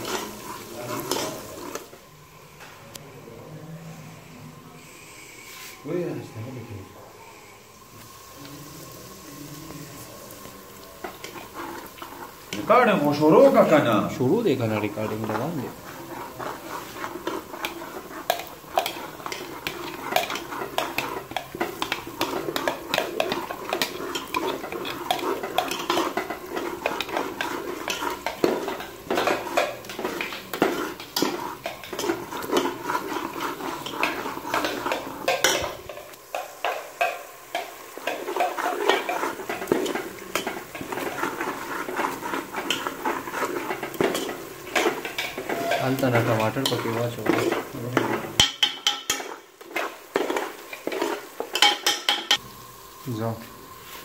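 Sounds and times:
spoon scraping and clinking on pot: 0.0 - 1.9, 14.8 - 52.4
frying sizzle: 0.0 - 54.0.

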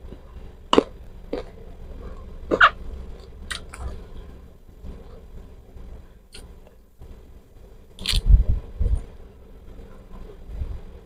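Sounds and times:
chewing lettuce: 0.0 - 4.1, 8.0 - 8.3.

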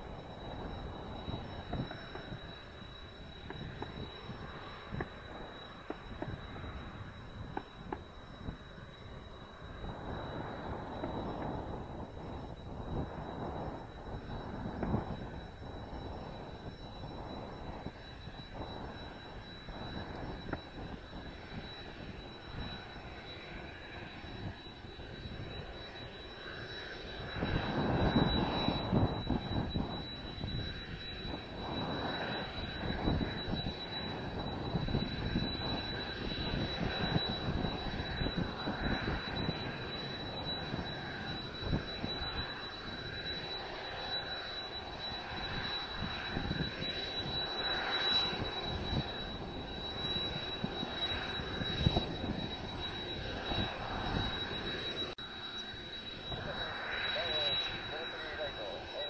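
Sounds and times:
jet engines idling: 0.0 - 59.0
wind buffeting microphone: 27.2 - 43.2.

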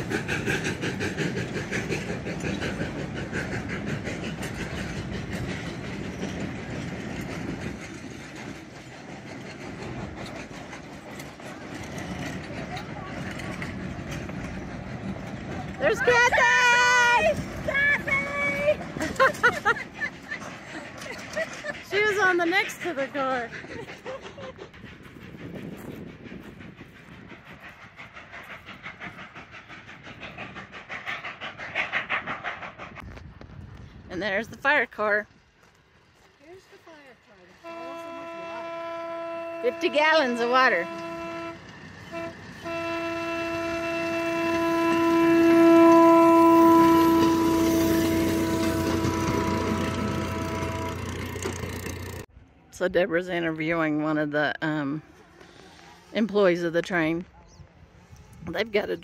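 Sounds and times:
train wheel clicks on rail joints: 0.0 - 18.1, 44.4 - 52.2
train wheels clicking over rail joints: 0.0 - 52.3.

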